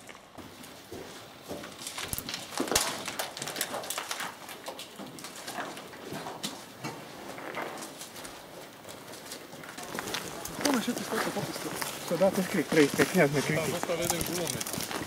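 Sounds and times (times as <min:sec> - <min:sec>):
footsteps on rubble and grit: 0:00.0 - 0:15.0.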